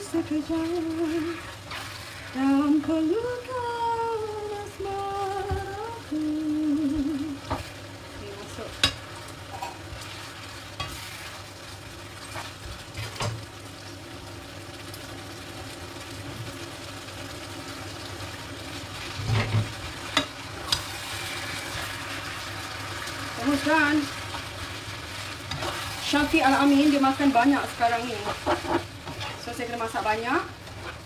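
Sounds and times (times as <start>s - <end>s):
vegetables sizzling in a pan: 0.0s - 31.0s
spatula scraping: 8.8s - 11.4s, 23.4s - 26.9s, 27.8s - 29.8s, 30.6s - 31.0s.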